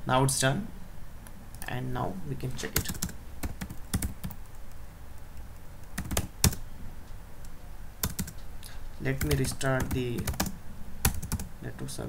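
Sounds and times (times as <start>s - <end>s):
computer keyboard typing: 2.7s - 6.6s, 8.0s - 8.4s, 9.1s - 11.5s.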